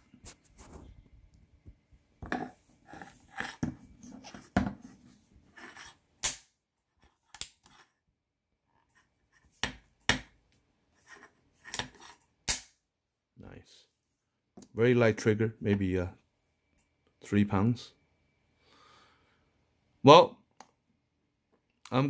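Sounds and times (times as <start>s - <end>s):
knocks and rustles of handling: 0.0s - 5.8s.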